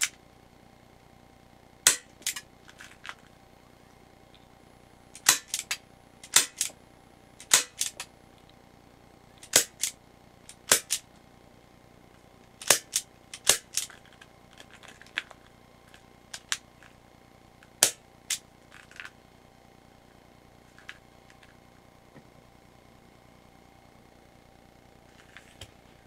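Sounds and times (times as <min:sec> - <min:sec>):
revolver clicks: 0:07.4 - 0:08.6, 0:09.4 - 0:11.0.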